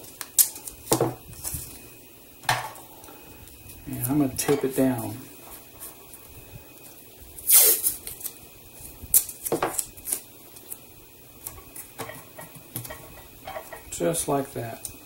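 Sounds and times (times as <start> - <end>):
tape rustling: 0.0 - 1.9, 5.4 - 13.9
tape tearing off roll: 7.4 - 8.4.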